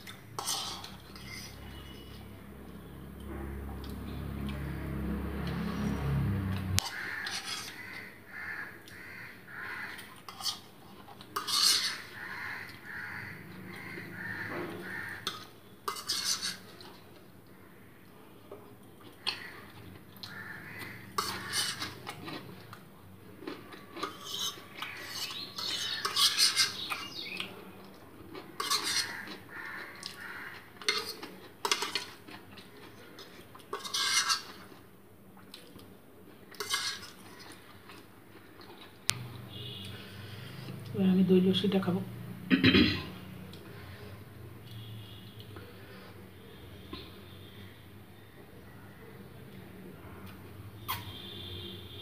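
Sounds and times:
fork scraping plastic plate: 0.3s - 2.2s, 6.8s - 7.8s, 10.3s - 12.1s, 15.2s - 16.9s, 21.1s - 22.5s, 24.0s - 27.0s, 28.6s - 29.3s, 33.7s - 34.8s, 36.6s - 37.6s
chewing: 18.9s - 34.8s, 35.4s - 40.0s.

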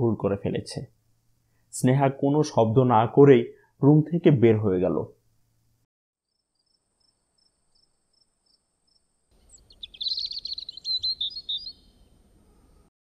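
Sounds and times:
soft background hiss: 0.0s - 5.9s
crickets chirping: 6.3s - 10.8s
bird singing: 6.3s - 12.9s.

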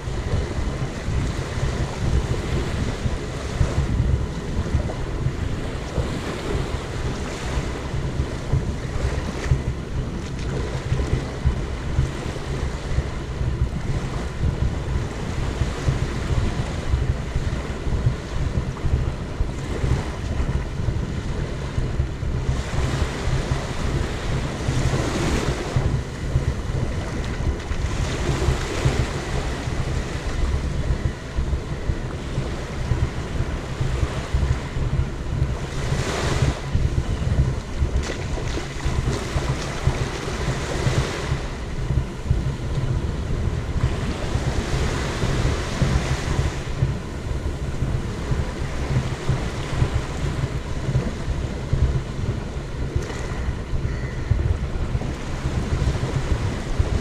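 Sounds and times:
waves washing onto beach: 0.0s - 57.0s
wind buffeting microphone: 0.0s - 57.0s.

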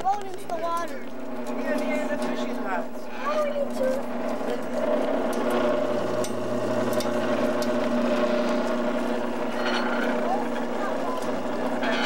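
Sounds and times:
electric motor humming: 0.0s - 12.0s.

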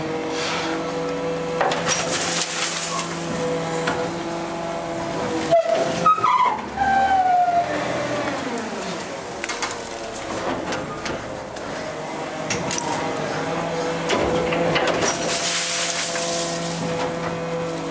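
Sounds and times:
garbage truck packer humming: 0.0s - 17.9s.

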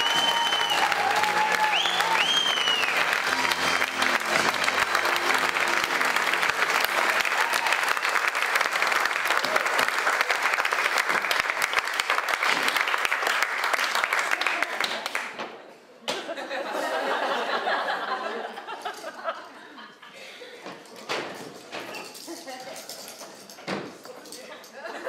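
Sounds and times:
backing music: 0.0s - 7.6s
audience applauding: 0.0s - 15.4s.

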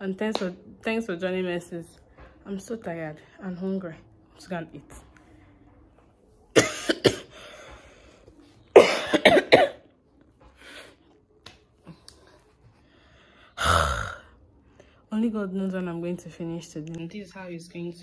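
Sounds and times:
woman coughing: 6.5s - 7.4s, 8.7s - 9.9s.

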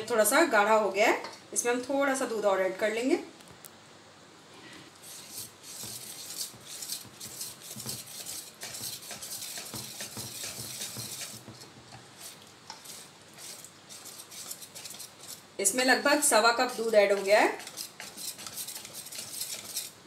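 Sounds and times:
whisk scraping metal bowl: 5.0s - 20.0s.

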